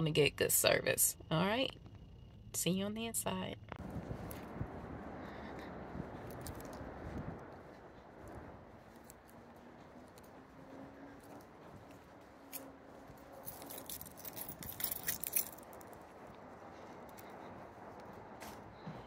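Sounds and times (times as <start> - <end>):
light jingling: 9.0 - 17.4.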